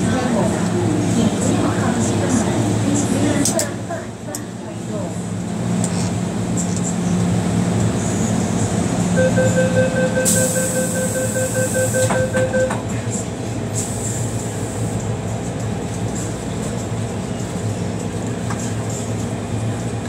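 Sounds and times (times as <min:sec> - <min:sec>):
stationary train hum: 0:00.0 - 0:20.0
rapid pulsing door warning beep: 0:09.2 - 0:12.7.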